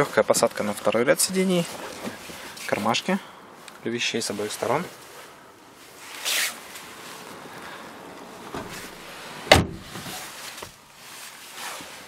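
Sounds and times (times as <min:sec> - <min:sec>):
person moving on car seat: 0:05.8 - 0:12.0
car door shutting: 0:08.4 - 0:10.7.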